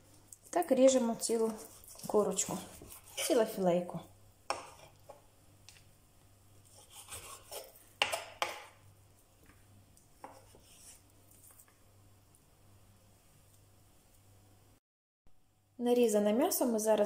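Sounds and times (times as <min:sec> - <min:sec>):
knife slicing on wooden board: 0:01.5 - 0:03.4, 0:06.7 - 0:08.7, 0:10.2 - 0:11.0.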